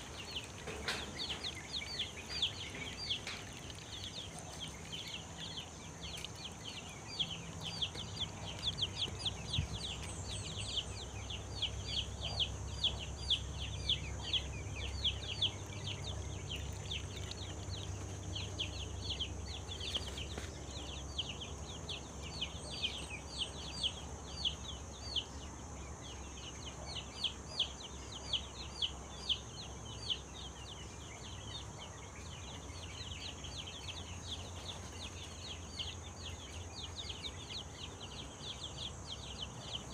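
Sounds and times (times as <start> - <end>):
chicks peeping: 0.0 - 39.9
low steady hum: 0.0 - 39.9.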